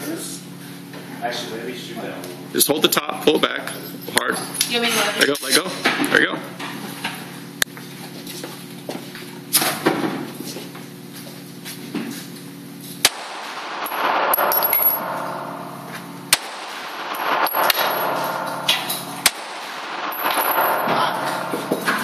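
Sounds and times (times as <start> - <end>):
pistol shots echoing indoors: 13.0 - 22.0.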